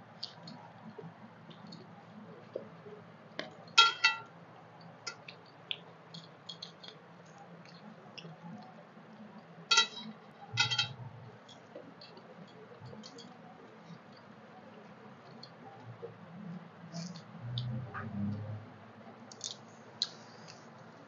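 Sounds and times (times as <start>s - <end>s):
fingers mixing rice on steel plates: 3.4s - 8.7s
steel plates clinking: 3.8s - 4.3s, 9.7s - 11.0s.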